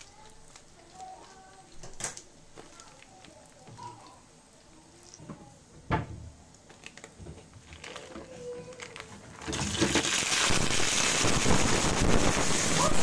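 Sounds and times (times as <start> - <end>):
plastic packet crinkling: 0.0 - 4.2, 6.7 - 12.6.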